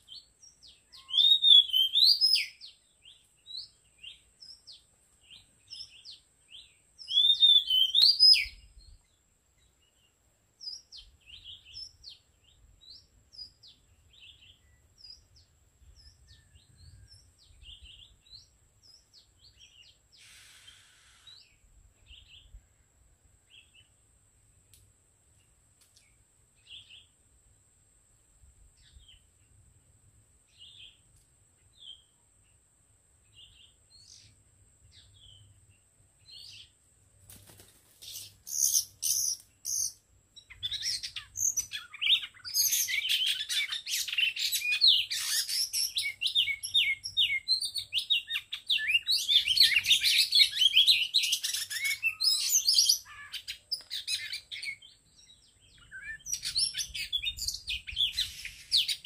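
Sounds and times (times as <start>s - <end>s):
birds chirping and singing: 0.0s - 22.6s, 37.4s - 59.0s.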